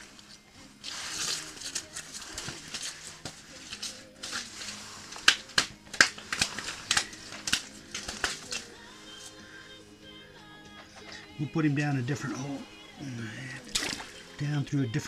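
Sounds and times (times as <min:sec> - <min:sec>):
fish flopping on ice: 0:00.0 - 0:09.4, 0:13.3 - 0:14.4.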